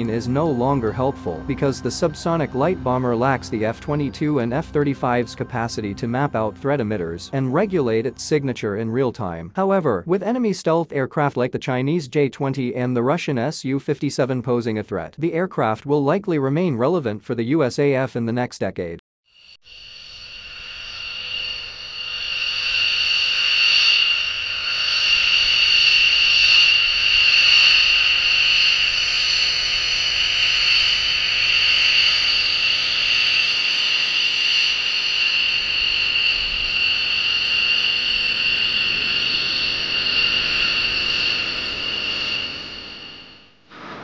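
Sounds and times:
jet engines whining: 20.7 - 44.0.

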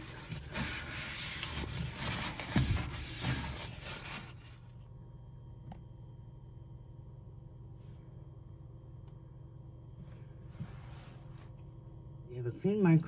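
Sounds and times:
cloth wiping inside microwave: 0.0 - 4.8, 10.1 - 11.6.

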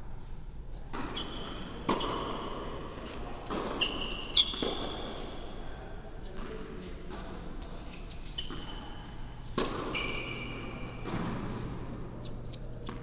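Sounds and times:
shoe squeaks: 0.7 - 5.6, 7.9 - 11.1, 12.1 - 13.0
tennis ball bouncing: 0.9 - 2.4, 9.4 - 11.8
racket hitting tennis ball: 0.9 - 5.3, 9.4 - 13.0.

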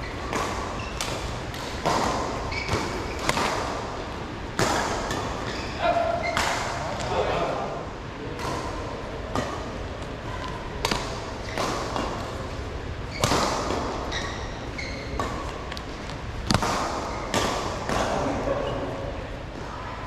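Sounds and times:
shoe squeaks: 0.0 - 1.0, 2.5 - 3.3, 5.4 - 6.4, 14.0 - 15.2
rackets striking shuttlecock: 0.2 - 3.8, 10.8 - 12.4, 15.0 - 18.2.

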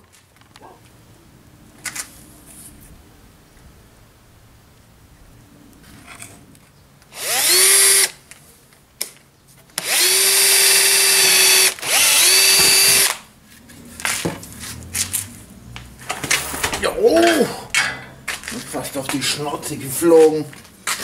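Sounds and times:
cordless drill motor whine: 7.1 - 8.2, 9.8 - 13.2.

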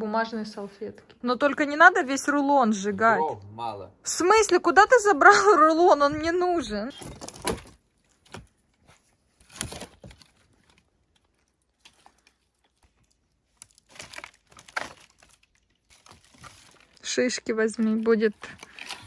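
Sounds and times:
paper crumpling: 9.4 - 19.0.

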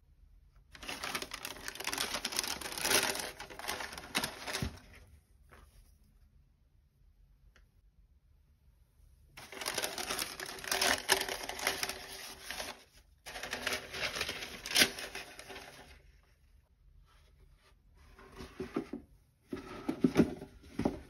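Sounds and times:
wrapping paper crinkling: 0.7 - 5.0, 9.4 - 16.3.

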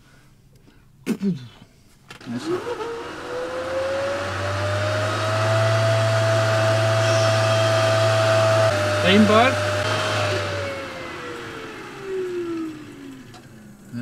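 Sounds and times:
water pump motor whine: 2.1 - 13.9.

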